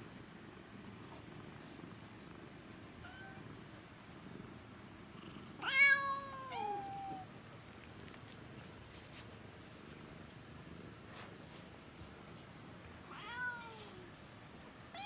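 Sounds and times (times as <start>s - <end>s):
cat meowing: 5.6s - 7.3s.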